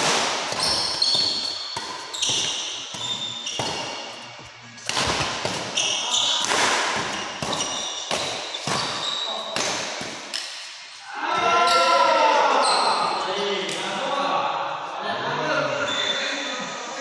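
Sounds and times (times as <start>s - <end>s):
racket hitting shuttlecock: 0.0s - 10.7s
shoes squeaking on court floor: 0.5s - 9.7s.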